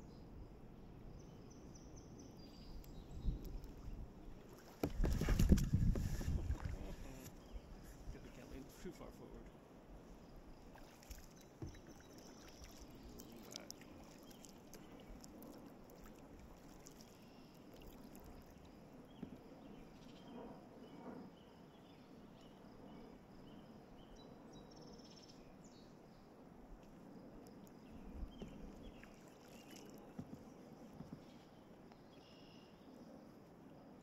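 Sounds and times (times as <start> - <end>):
soft water sounds: 0.0 - 21.3, 25.9 - 32.0
water drips and clicks: 11.0 - 18.4.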